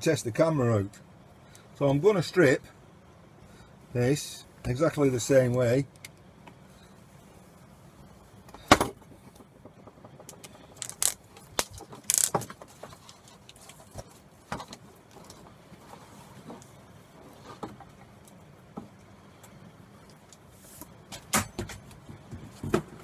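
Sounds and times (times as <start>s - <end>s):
cable being stripped and pulled: 10.2s - 14.1s.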